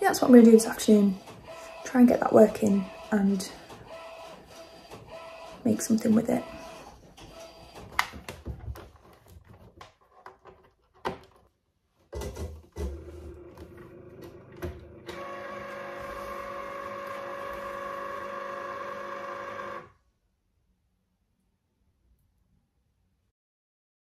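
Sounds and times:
cutting machine motor whirring: 12.9 - 19.9.

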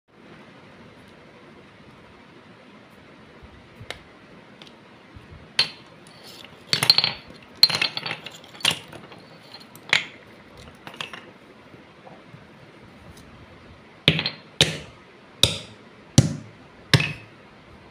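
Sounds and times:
shards clinking: 5.6 - 10.2.

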